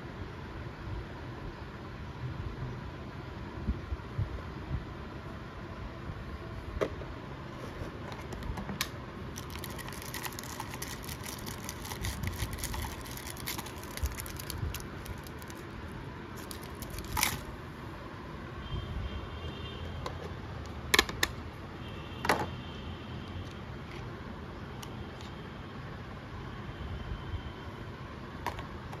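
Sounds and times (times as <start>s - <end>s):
steady background hum: 0.0s - 29.0s
foil wrappers crinkling: 9.4s - 15.7s, 16.4s - 17.5s.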